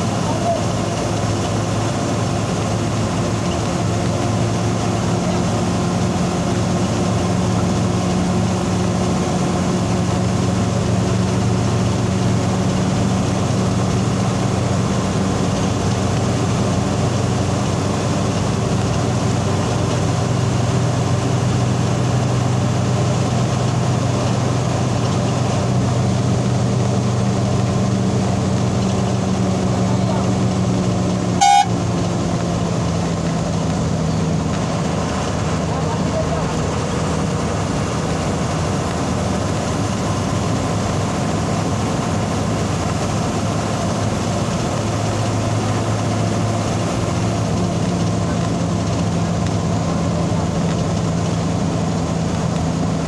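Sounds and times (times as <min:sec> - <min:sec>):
road noise: 0:00.0 - 0:53.0
vehicle engine running: 0:00.0 - 0:53.0.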